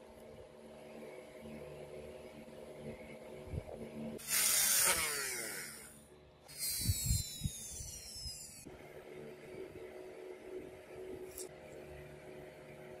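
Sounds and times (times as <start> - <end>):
rotary tool grinding wood: 4.2 - 8.7.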